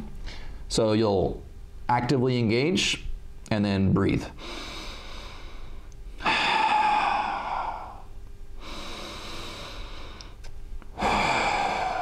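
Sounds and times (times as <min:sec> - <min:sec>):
man breathing deeply: 0:00.2 - 0:00.7, 0:04.4 - 0:12.0.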